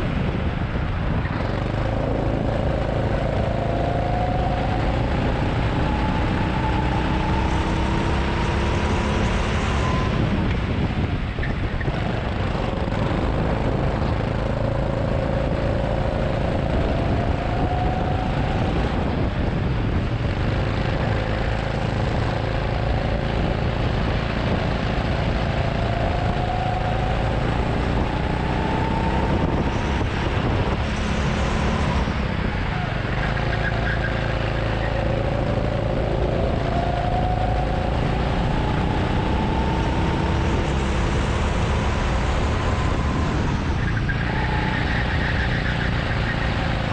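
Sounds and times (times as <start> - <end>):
constant rushing noise: 0.0 - 46.9
go-kart engine revving: 11.8 - 46.9.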